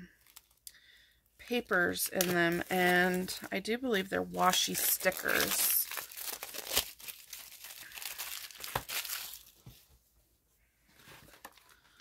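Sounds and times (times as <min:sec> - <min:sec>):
packaging being torn and crinkled: 0:00.2 - 0:00.7, 0:04.5 - 0:09.6.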